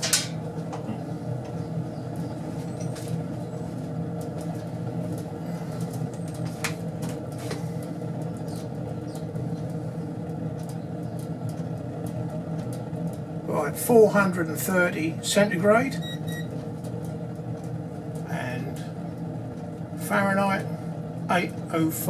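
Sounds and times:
stove burning with low roar: 0.0s - 22.0s
sharp clicks and crackles: 4.2s - 13.3s, 16.3s - 18.3s.

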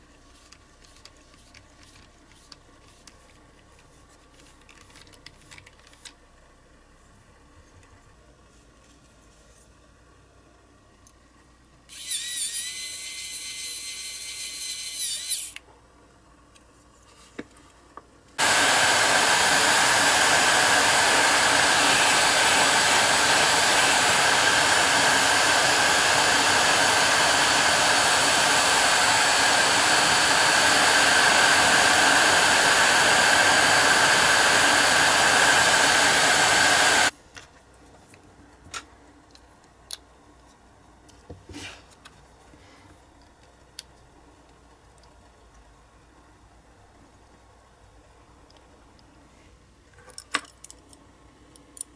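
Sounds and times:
electric screwdriver whining: 11.9s - 15.6s, 18.4s - 37.1s
heat gun blowing: 11.9s - 15.6s, 18.4s - 37.1s.

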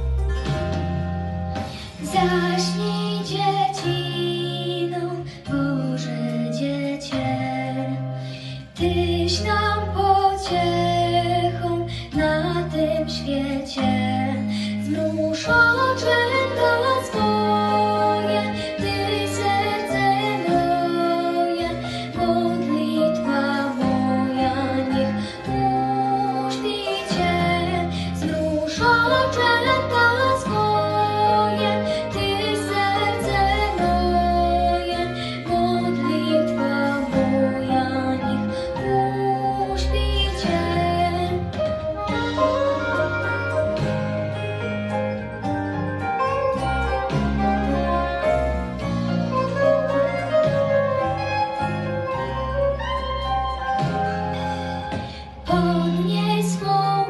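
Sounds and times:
instrumental backing: 0.0s - 57.0s
woman singing a lullaby: 8.7s - 41.6s.

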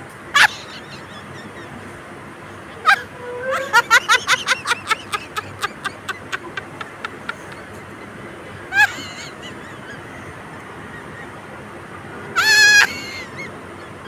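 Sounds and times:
bird honking calls: 2.5s - 4.8s, 12.3s - 14.0s.

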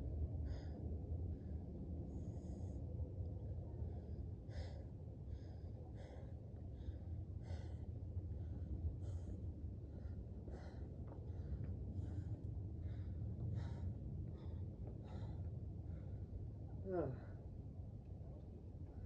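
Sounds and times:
low rumble: 0.0s - 19.0s
person breathing: 3.8s - 17.6s.

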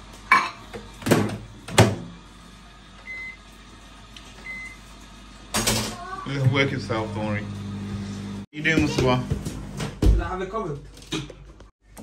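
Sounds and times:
microwave beeps: 3.0s - 3.4s, 4.4s - 4.9s.

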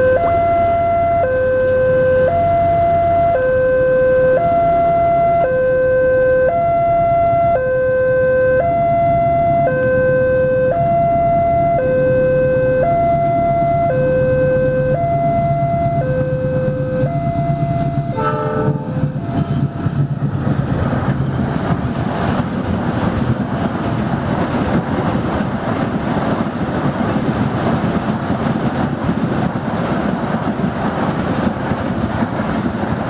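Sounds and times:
two-tone crossing alarm: 0.0s - 19.8s.

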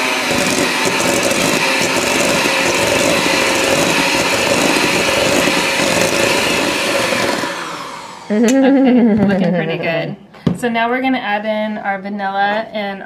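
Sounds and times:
electric hand mixer running: 0.0s - 9.3s.

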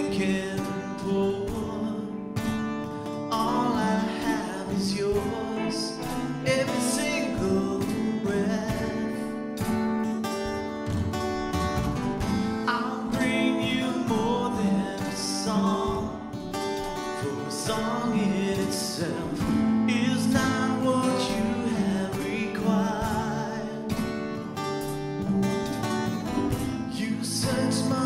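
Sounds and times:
people singing: 0.0s - 2.6s, 3.3s - 9.4s, 12.6s - 16.5s, 17.2s - 24.4s, 26.4s - 28.0s
electric guitar: 0.0s - 28.0s
percussion: 0.0s - 28.0s
strummed acoustic guitar: 0.0s - 28.0s.

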